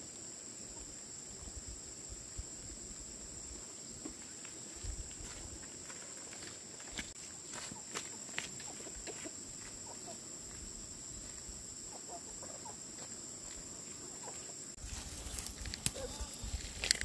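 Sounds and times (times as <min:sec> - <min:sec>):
chickens clucking: 0:07.6 - 0:10.3, 0:11.8 - 0:13.1, 0:14.0 - 0:14.6.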